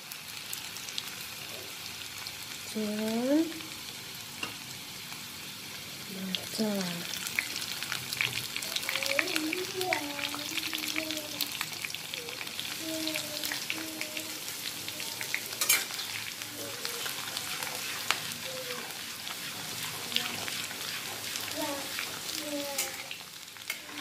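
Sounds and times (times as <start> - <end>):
chillies sizzling in hot oil: 0.0 - 24.0
metal spatula stirring: 15.5 - 24.0.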